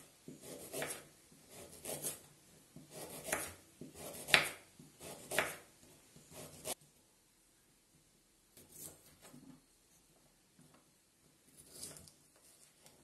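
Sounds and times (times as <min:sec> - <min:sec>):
knife slicing carrot on wooden board: 0:00.3 - 0:02.2, 0:02.8 - 0:05.7.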